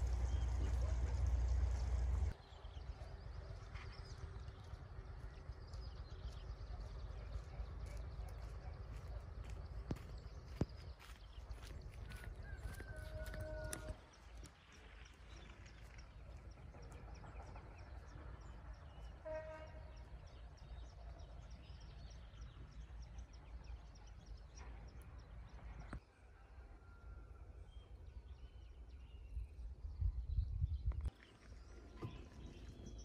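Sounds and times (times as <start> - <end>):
steady low rumble: 0.0 - 12.7.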